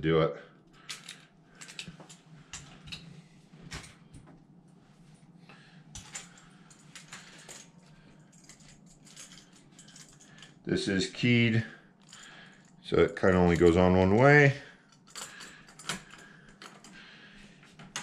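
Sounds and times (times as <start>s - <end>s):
metal parts clicking and clinking: 0.8s - 3.1s, 5.9s - 10.6s, 12.0s - 17.0s, 17.8s - 18.0s.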